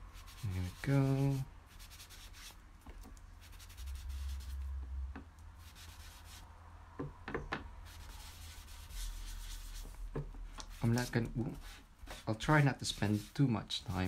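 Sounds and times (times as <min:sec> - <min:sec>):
sponge rubbing on cardstock: 0:00.1 - 0:02.6, 0:03.4 - 0:04.6, 0:07.8 - 0:10.0, 0:10.6 - 0:14.0.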